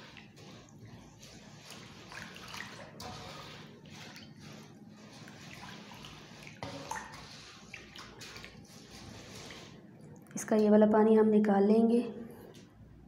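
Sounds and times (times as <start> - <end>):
water sloshing in metal basin: 0.0 - 9.9.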